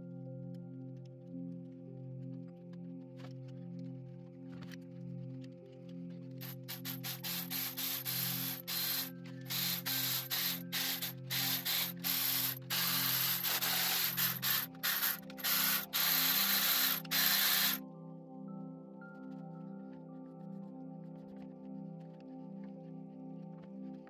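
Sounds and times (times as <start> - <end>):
quiet background music: 0.0 - 24.0
cordless ratchet running: 6.4 - 17.8.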